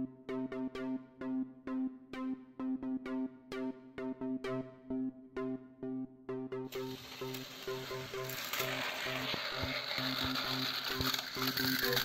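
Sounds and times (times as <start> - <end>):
electronic music with beat: 0.0 - 12.0
toy train motors whirring: 6.7 - 12.0.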